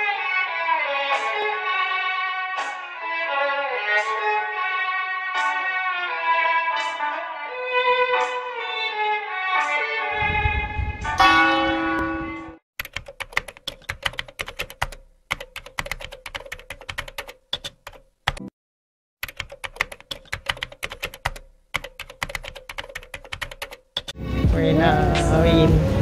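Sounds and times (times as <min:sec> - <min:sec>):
music: 0:00.0 - 0:12.6, 0:24.2 - 0:26.0
computer keyboard typing: 0:12.8 - 0:18.5, 0:19.2 - 0:24.2.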